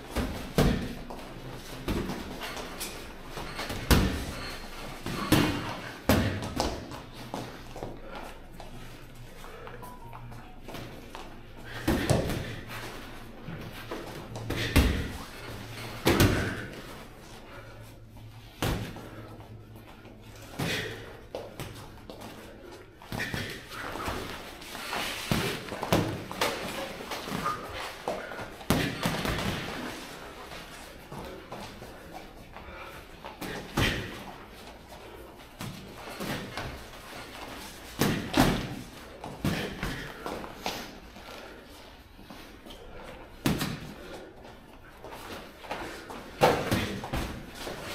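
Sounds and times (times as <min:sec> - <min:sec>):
steady low hum: 0:00.0 - 0:47.9
boxing gloves thudding punches: 0:00.1 - 0:01.2, 0:05.1 - 0:07.0, 0:16.0 - 0:16.8, 0:28.7 - 0:29.9, 0:37.9 - 0:40.1.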